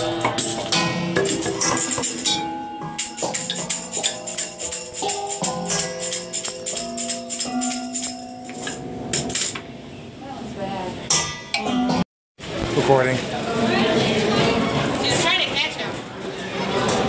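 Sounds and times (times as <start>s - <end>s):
jingling percussion: 0.0s - 9.6s.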